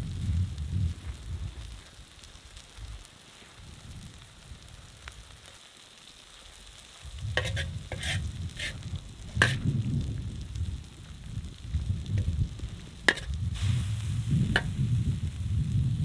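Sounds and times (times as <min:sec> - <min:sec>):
food frying in metal pan: 0:00.0 - 0:16.0
low rumble: 0:07.1 - 0:16.0
metal spatula scraping pan: 0:07.4 - 0:08.8, 0:09.4 - 0:09.6, 0:13.1 - 0:13.4.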